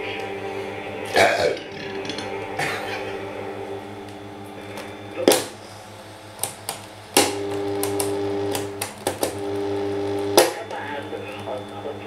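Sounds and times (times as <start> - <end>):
electrical hum: 0.0 - 12.0
radio buttons clicking: 6.4 - 9.4.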